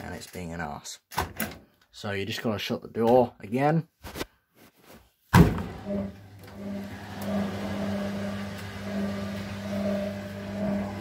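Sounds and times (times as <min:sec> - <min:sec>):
washing machine motor humming: 0:05.6 - 0:11.0.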